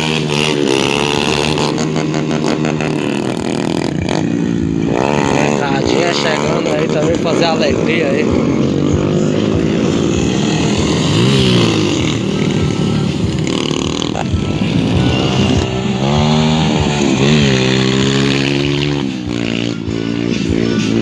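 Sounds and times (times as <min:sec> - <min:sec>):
dirt bike engines revving: 0:00.0 - 0:21.0.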